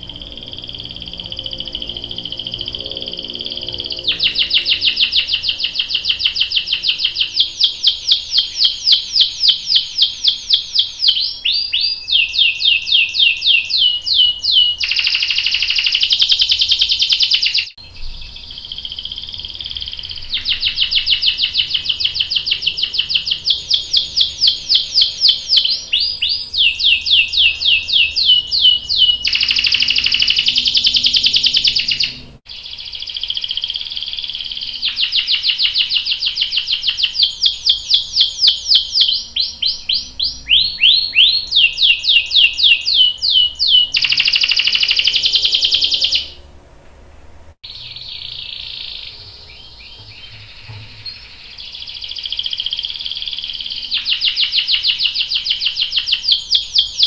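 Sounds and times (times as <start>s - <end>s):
canary singing: 0.0s - 46.5s, 47.6s - 57.0s.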